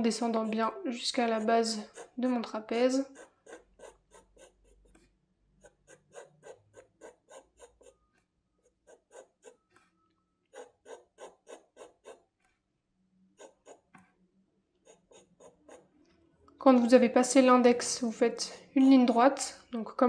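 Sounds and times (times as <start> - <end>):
pencil scratching on paper: 0.0 - 9.9, 10.5 - 12.5, 13.3 - 14.1, 14.8 - 17.2.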